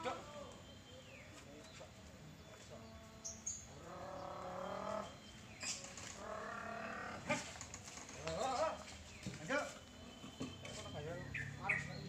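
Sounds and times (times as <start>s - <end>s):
drawn-out call: 6.1s - 7.6s
high bird chirp: 9.1s - 12.0s.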